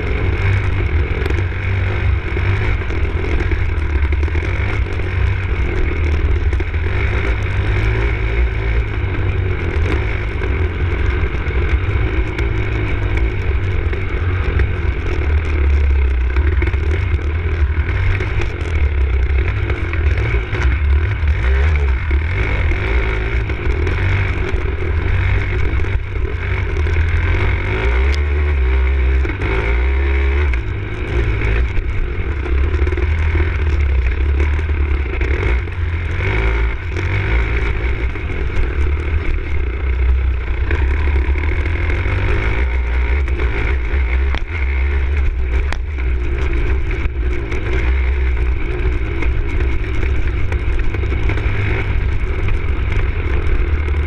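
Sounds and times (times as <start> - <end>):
motorcycle engine under load: 0.0 - 54.0.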